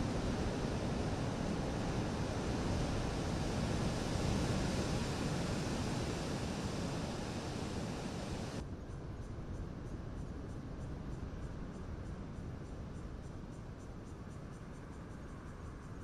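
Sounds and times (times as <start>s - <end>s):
surf breaking on beach: 0.0s - 8.6s
wind on microphone: 0.0s - 8.6s.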